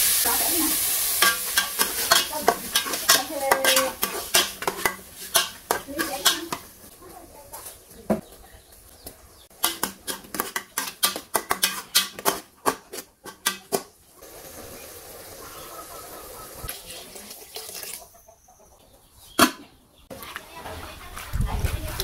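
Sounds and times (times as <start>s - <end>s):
water pouring and hissing: 0.0s - 6.0s, 14.2s - 18.0s
meat frying crackles: 0.0s - 7.1s, 9.4s - 18.0s.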